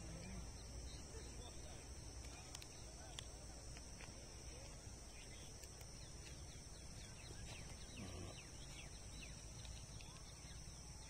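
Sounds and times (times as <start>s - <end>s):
bird chirping: 4.6s - 11.0s.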